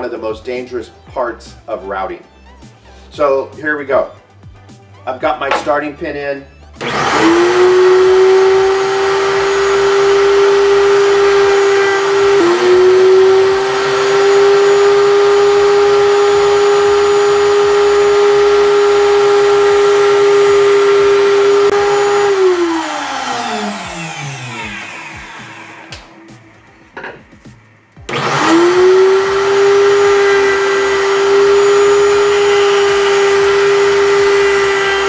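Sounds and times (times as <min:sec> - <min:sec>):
router whining: 0:05.3 - 0:05.9, 0:06.8 - 0:27.2, 0:28.0 - 0:35.0
router spinning down: 0:05.4 - 0:05.8, 0:06.8 - 0:26.2, 0:28.1 - 0:35.0.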